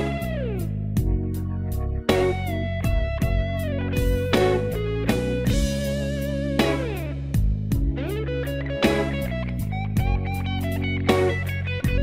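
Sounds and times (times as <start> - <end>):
plucked electric guitar notes: 0.0 - 12.0
drum beat: 2.1 - 4.6, 5.5 - 8.2.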